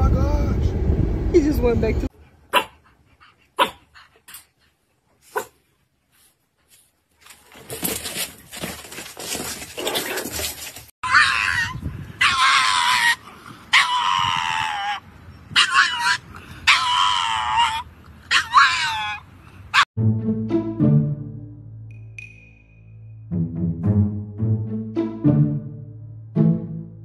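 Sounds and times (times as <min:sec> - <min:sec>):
puppies scuffling: 0:06.6 - 0:10.9
dog howling high-pitched: 0:11.0 - 0:15.0, 0:15.6 - 0:19.2
puppies yipping: 0:11.0 - 0:19.9.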